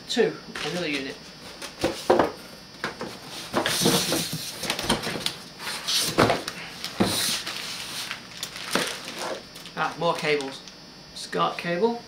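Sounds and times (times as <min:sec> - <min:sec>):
packaging rustling: 0:03.6 - 0:10.6.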